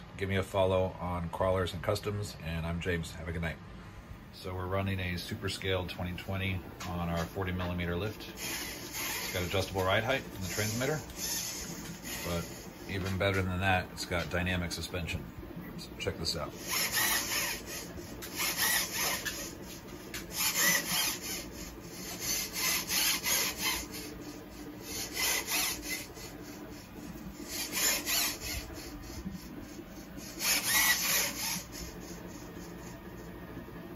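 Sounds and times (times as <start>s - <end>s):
servos whirring: 6.8s - 15.2s, 15.8s - 33.4s.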